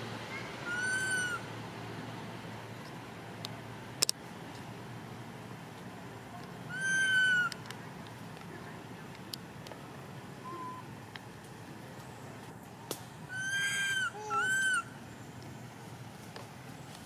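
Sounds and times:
monkey crying: 0.3s - 1.4s, 6.7s - 7.6s, 13.3s - 14.9s.

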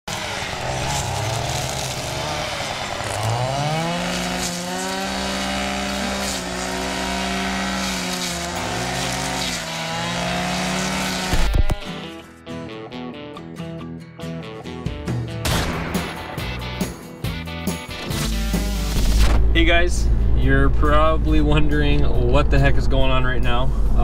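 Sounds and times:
brush cutter engine revving: 0.0s - 12.2s.

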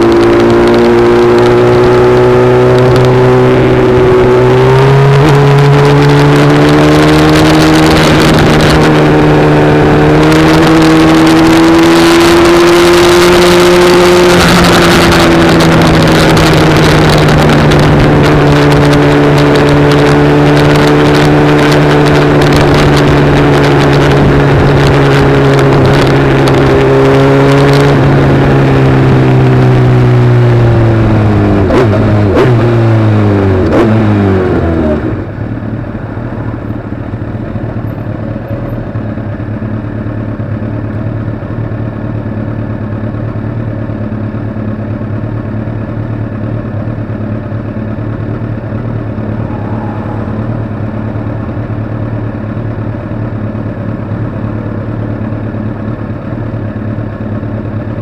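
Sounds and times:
heavy rushing noise: 0.0s - 29.2s, 48.0s - 54.6s
vehicle engine running: 0.0s - 58.0s.

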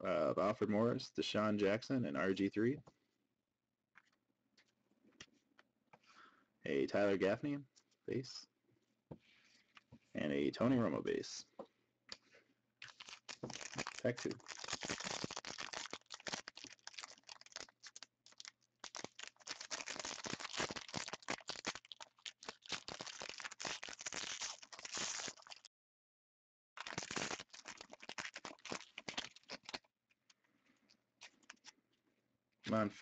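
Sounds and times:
foil wrapper tearing and crinkling: 12.8s - 25.7s, 26.8s - 29.9s.

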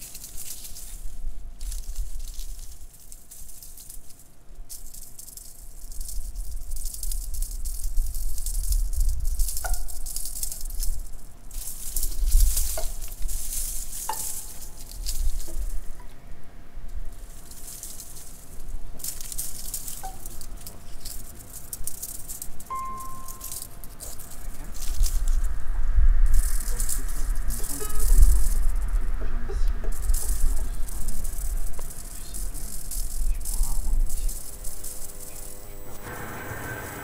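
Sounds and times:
ringing pings dropping in pitch: 22.7s - 23.6s
low rumble: 22.9s - 37.0s
heavy rain on road: 36.0s - 37.0s.

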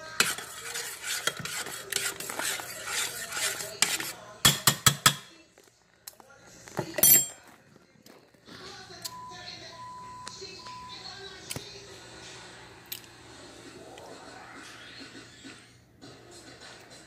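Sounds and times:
spoon scraping saucepan: 0.0s - 5.4s
spoon clinking on pan: 7.0s - 7.4s.

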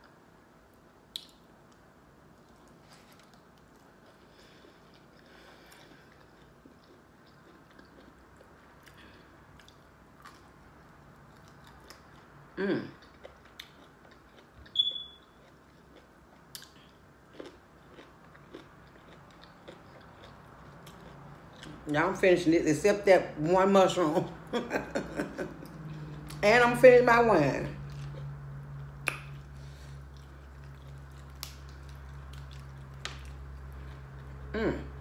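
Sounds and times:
chewing and biting food: 1.1s - 21.9s, 27.8s - 35.0s
wet mouth clicks: 29.0s - 29.4s
person humming: 34.5s - 35.0s.

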